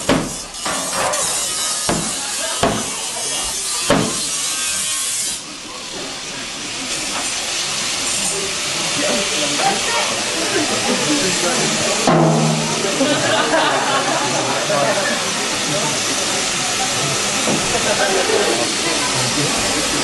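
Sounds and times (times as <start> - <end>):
loud steady hiss: 0.0 - 20.0
sharp percussive strikes: 12.1 - 13.1.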